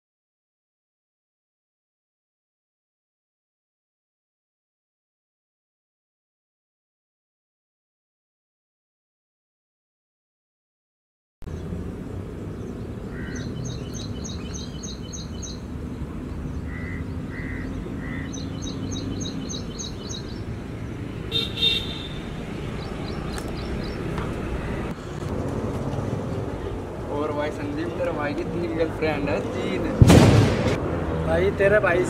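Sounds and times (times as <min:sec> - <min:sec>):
birds chirping: 0:11.4 - 0:30.0
traffic rumble: 0:11.4 - 0:32.0
car horn toots: 0:21.3 - 0:22.3.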